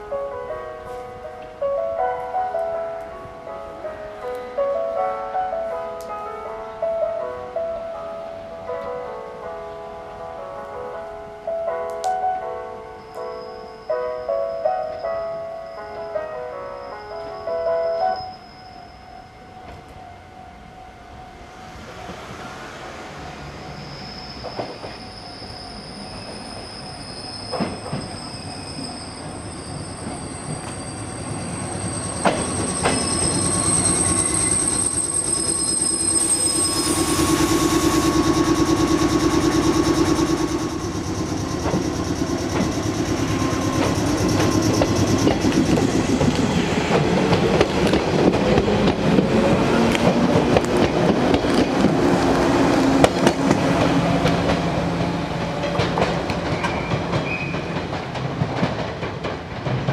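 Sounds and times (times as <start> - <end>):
high thin squealing tones: 23.8 - 46.2
electric train motors whining: 30.6 - 47.0
wheels clattering over rail joints: 36.3 - 59.9.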